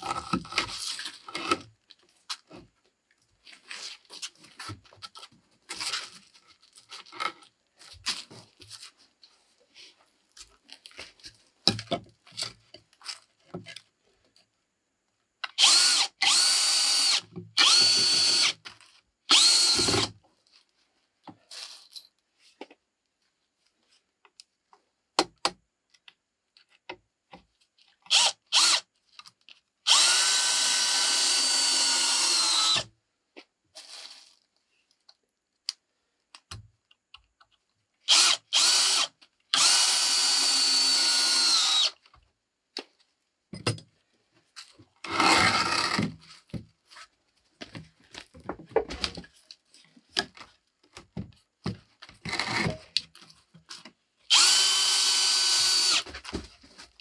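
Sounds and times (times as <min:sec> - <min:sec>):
cordless drill whining into wood: 0:15.5 - 0:18.6, 0:19.3 - 0:20.2, 0:28.1 - 0:28.9, 0:29.8 - 0:32.9, 0:38.1 - 0:42.0, 0:45.0 - 0:46.1, 0:52.2 - 0:52.8, 0:54.3 - 0:56.1
wood knocking and clattering: 0:47.6 - 0:49.4.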